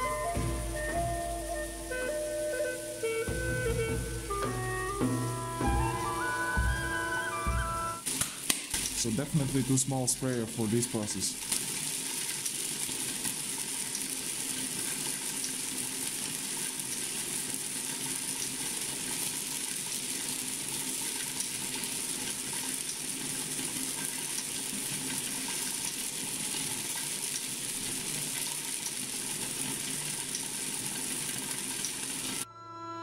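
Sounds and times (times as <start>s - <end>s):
motor hum: 3.2s - 8.0s.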